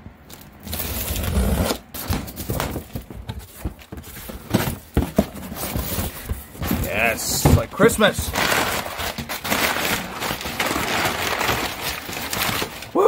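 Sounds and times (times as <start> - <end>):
packing paper rustling: 0.2 - 13.0
cardboard flaps knocking: 2.0 - 9.4.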